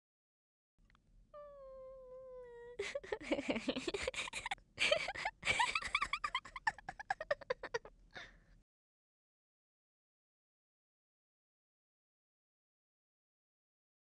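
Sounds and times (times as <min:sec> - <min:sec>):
girl crying and sobbing: 0:01.4 - 0:08.3.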